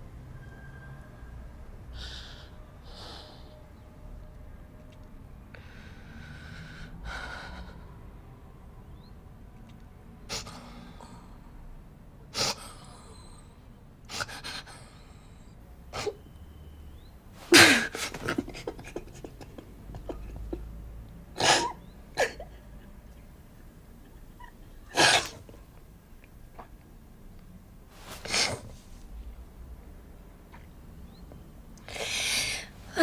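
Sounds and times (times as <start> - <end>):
woman sobbing and sniffing: 17.4 - 20.7.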